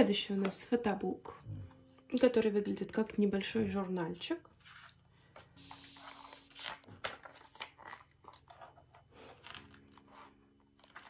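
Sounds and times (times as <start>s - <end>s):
pages turning: 4.6s - 11.0s
paper rustling and crinkling: 4.6s - 11.0s.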